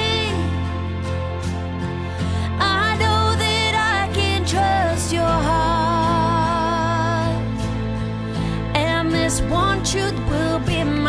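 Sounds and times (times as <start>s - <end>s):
woman singing worship song: 0.0s - 1.0s, 2.2s - 7.6s, 8.5s - 11.0s.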